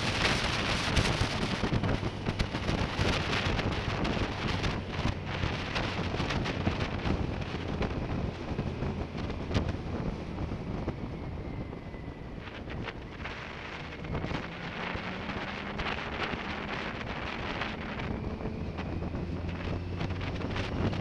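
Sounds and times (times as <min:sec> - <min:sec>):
motorcycle engine humming: 0:00.0 - 0:21.0
wind gusts on microphone: 0:00.0 - 0:21.0.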